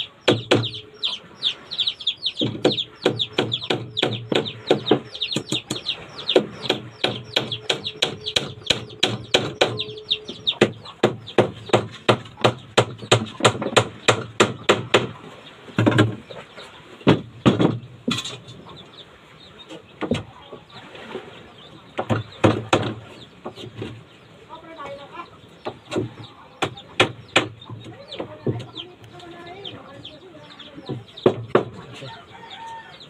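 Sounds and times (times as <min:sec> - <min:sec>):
knocks: 0:00.2 - 0:00.8, 0:02.4 - 0:15.2, 0:15.8 - 0:16.2, 0:17.0 - 0:18.4, 0:22.0 - 0:23.9, 0:30.8 - 0:31.8.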